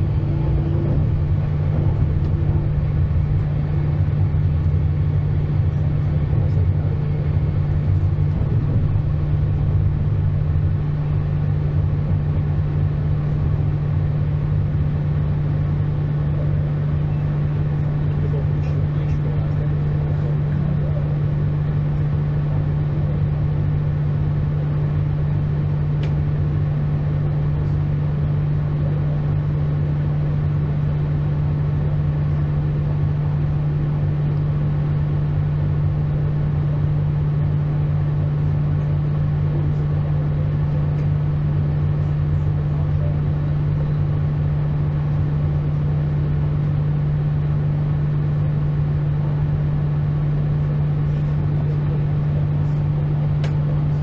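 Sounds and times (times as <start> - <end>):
train rumble with low hum: 0.0 - 54.0.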